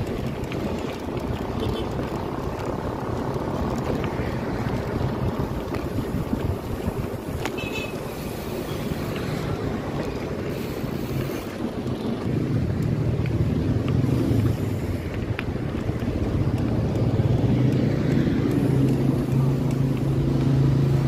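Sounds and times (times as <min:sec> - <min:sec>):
low engine hum: 0:00.0 - 0:21.0
road rumble: 0:00.0 - 0:21.0
wind rushing over microphone: 0:00.0 - 0:21.0.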